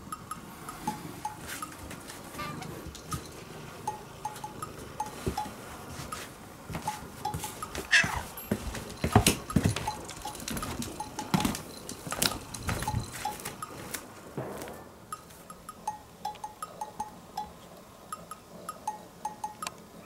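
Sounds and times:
sharp knocks and rustles: 0.8 - 15.6
cat meowing: 2.4 - 2.8, 7.9 - 8.3.

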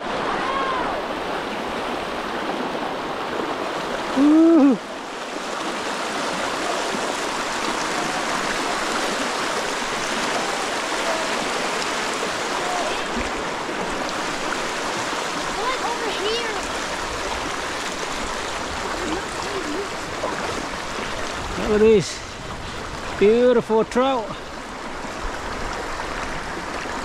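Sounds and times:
stream rushing over rocks: 0.0 - 27.0
person calling out: 4.1 - 4.8.

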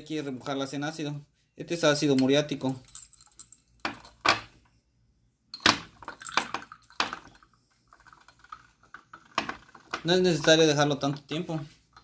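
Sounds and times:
plastic parts clinking against glass jar: 5.6 - 12.0.

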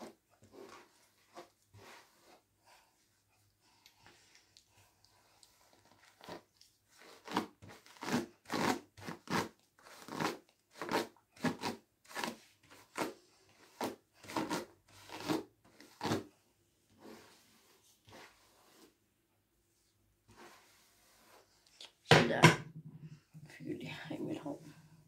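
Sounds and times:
hairbrush brushing through hair: 0.0 - 3.0, 16.9 - 19.0, 19.8 - 22.0.

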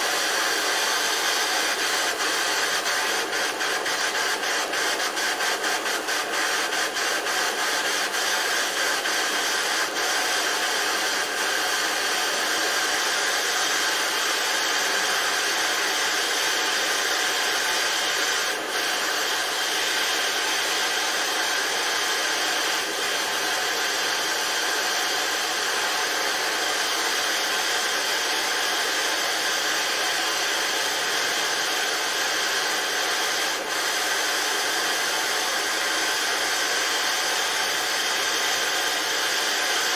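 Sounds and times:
gas torch hissing: 0.0 - 39.9.

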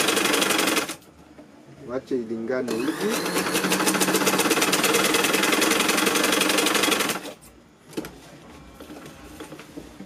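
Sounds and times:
sewing machine stitching: 0.0 - 1.0, 2.7 - 7.4.

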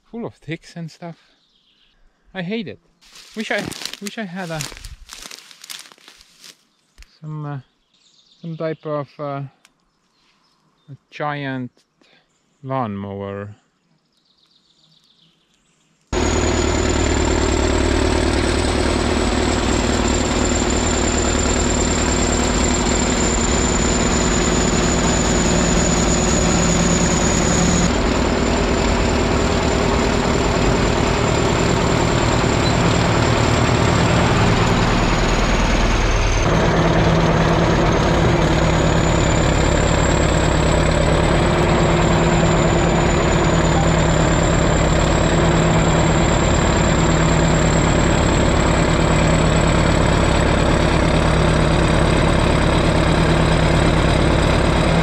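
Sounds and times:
bulldozer diesel engine running: 3.2 - 5.2, 16.1 - 55.0.

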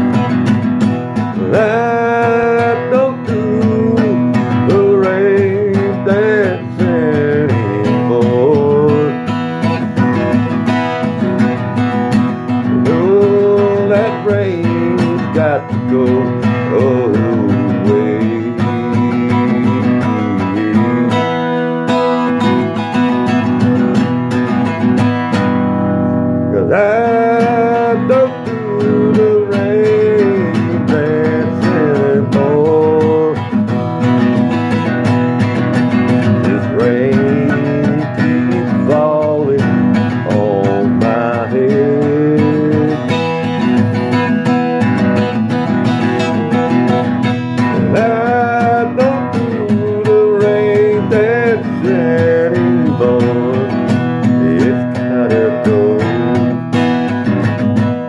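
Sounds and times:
acoustic guitar strumming: 0.0 - 58.0
man singing: 1.1 - 24.0, 26.5 - 58.0.

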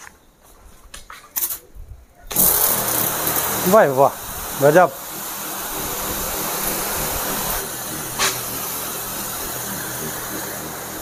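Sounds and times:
pump humming: 2.3 - 11.0
spray hissing: 2.3 - 11.0.

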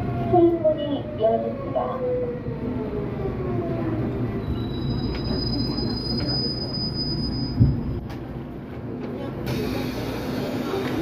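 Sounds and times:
subway train rumbling and whining: 0.0 - 11.0
high-pitched brake squeal: 4.4 - 7.7
train stopping thump: 7.3 - 8.3.

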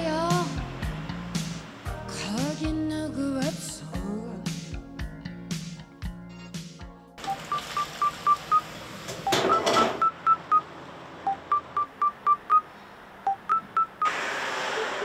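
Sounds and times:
electronic beep tune: 7.2 - 10.7, 11.3 - 12.6, 13.3 - 14.2.

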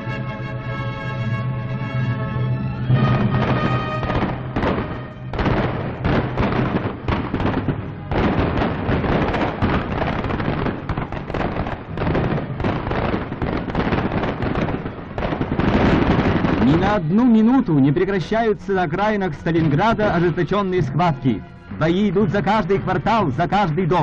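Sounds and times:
explosions: 2.8 - 18.0
gunfire crackle: 3.0 - 18.0.

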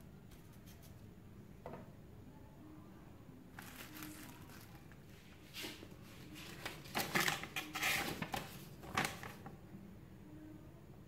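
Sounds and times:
plastic packaging crinkling: 3.5 - 5.1, 6.4 - 9.5.

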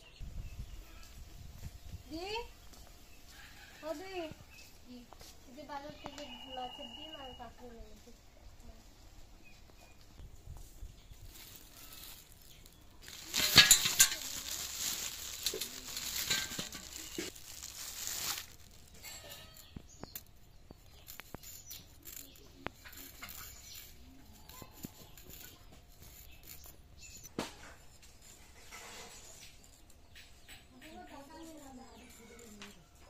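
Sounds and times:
plastic bag rustling: 11.1 - 19.8.

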